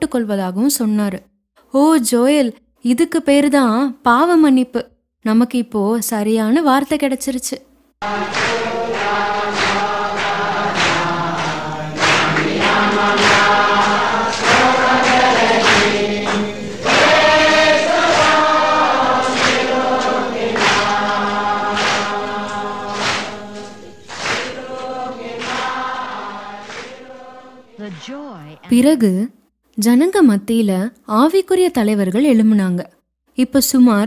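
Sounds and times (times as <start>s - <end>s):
congregation singing: 8.0s - 28.7s.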